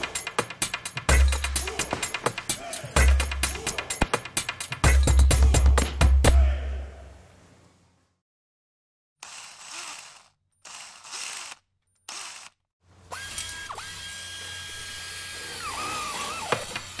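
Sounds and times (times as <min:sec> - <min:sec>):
small electric motor whining: 0:09.2 - 0:17.0.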